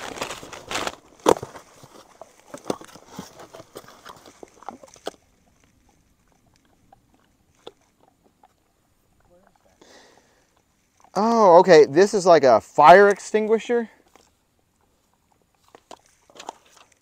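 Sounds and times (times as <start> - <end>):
cardboard tearing and crinkling: 0.0 - 5.2.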